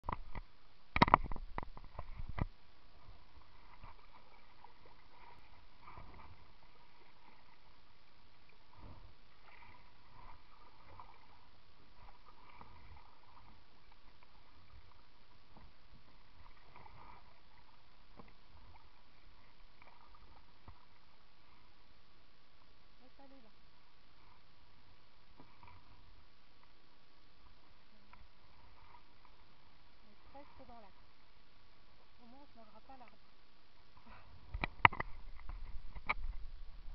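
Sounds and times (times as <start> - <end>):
water lapping against kayak hull: 0.0 - 36.9.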